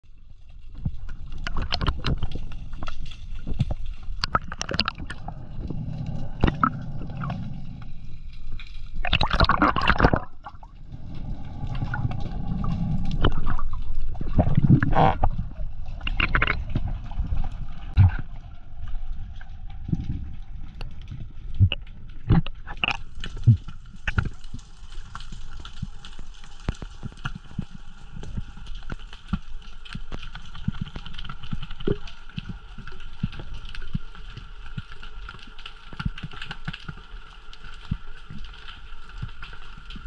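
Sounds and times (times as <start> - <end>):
underwater gurgling: 0.0 - 40.0
rush of bubbling: 0.6 - 29.0.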